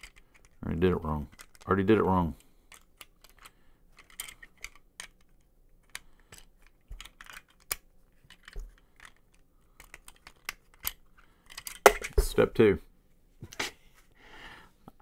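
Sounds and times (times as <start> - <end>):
plastic bricks clicking together: 0.0 - 0.6, 1.2 - 1.7, 2.7 - 12.2.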